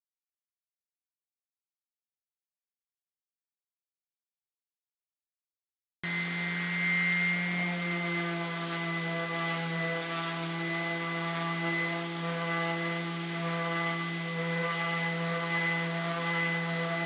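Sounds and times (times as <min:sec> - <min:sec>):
orbital sander humming and whining: 0:06.0 - 0:17.0.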